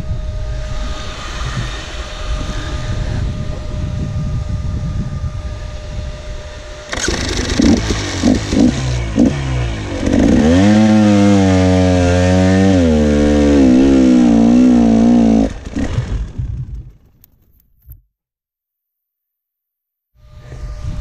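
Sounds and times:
dirt bike engine revving: 6.2s - 17.0s
engine sputtering: 6.8s - 11.4s, 12.0s - 17.2s.

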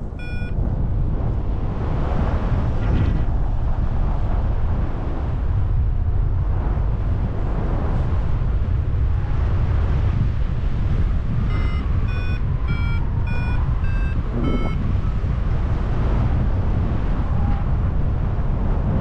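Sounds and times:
wind rushing over microphone: 0.0s - 19.0s
variometer beeping short tones: 0.1s - 0.6s, 11.5s - 14.9s.

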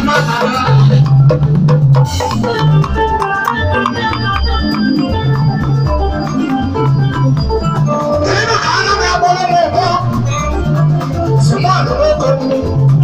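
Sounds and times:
conga drums beating: 0.0s - 13.0s
organ-sounding keyboard chords: 0.0s - 13.0s.

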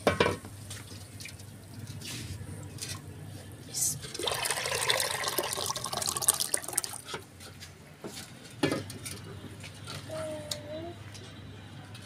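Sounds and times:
thick liquid pouring into pot: 4.1s - 7.0s.

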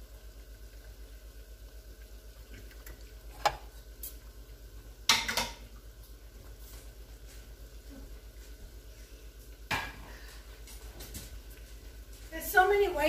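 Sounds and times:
oil sizzling in a pan: 0.0s - 10.3s
kitchenware clattering on counter: 5.1s - 5.6s.

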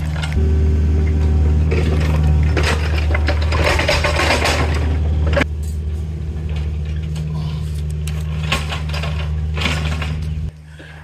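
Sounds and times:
engine running at low revs: 0.0s - 10.6s
loud clattering noise: 1.2s - 5.5s, 8.0s - 10.5s.

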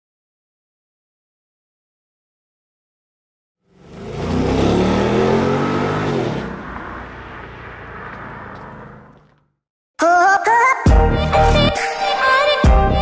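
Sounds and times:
car driving past under throttle: 3.7s - 9.5s.

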